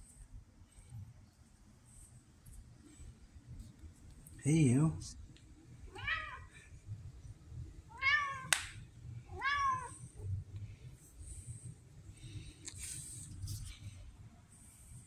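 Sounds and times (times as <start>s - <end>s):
cat meowing: 5.9s - 6.5s, 7.9s - 8.6s, 9.3s - 10.0s.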